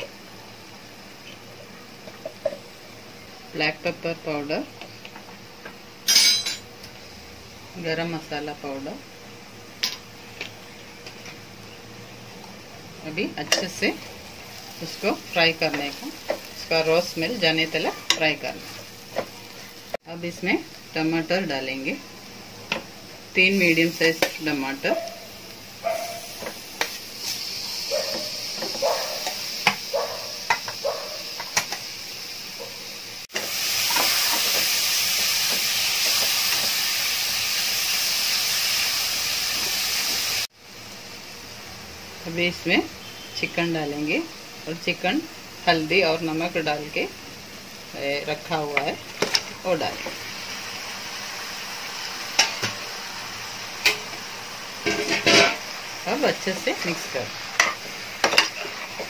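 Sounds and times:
tomatoes sizzling in hot oil: 0:00.0 - 0:59.0
spoon clinking metal pot: 0:06.1 - 0:06.6.

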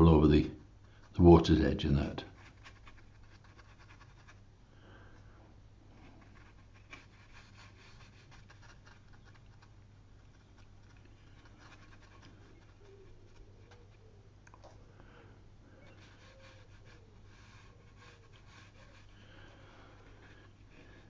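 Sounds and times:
low steady hum: 0:00.0 - 0:21.0
brush scratching on paper: 0:02.3 - 0:04.4, 0:06.0 - 0:14.2, 0:15.8 - 0:21.0.

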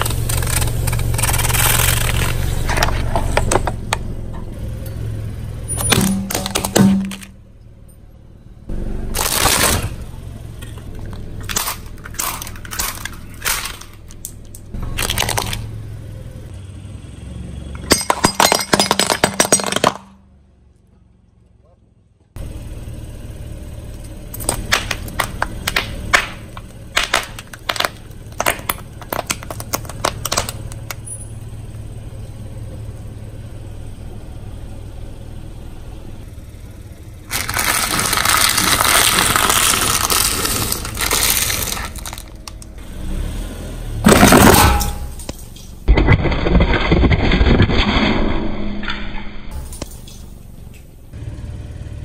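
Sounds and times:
low engine rumble: 0:00.0 - 0:47.5, 0:48.3 - 0:52.0
tyre crushing objects: 0:05.8 - 0:07.4, 0:09.1 - 0:10.1, 0:10.9 - 0:14.2, 0:24.4 - 0:31.0, 0:37.3 - 0:42.6, 0:44.0 - 0:47.8.

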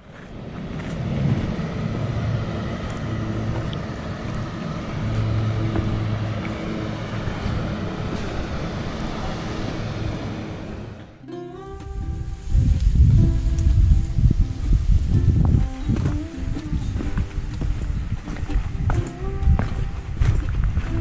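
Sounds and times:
wind buffeting microphone: 0:00.0 - 0:21.0
music with pitched notes: 0:11.2 - 0:21.0.

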